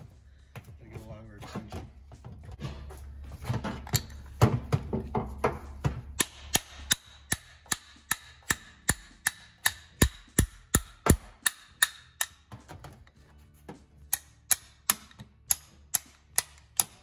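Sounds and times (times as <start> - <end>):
hammer tapping steel punch: 6.2 - 13.0, 14.1 - 17.0.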